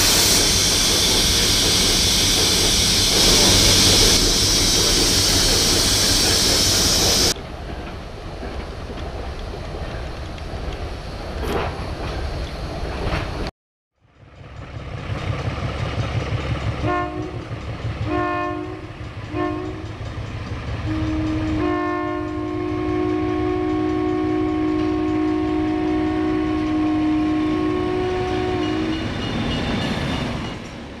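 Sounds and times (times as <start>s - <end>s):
low rumble of diesel engine: 14.0s - 18.0s
diesel locomotive horn blasts: 16.8s - 20.0s, 20.8s - 29.4s.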